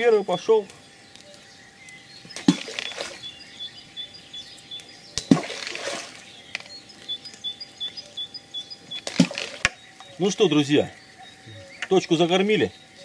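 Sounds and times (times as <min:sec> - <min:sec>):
balls splashing into river: 0:02.4 - 0:03.3, 0:05.2 - 0:06.3, 0:09.0 - 0:09.8.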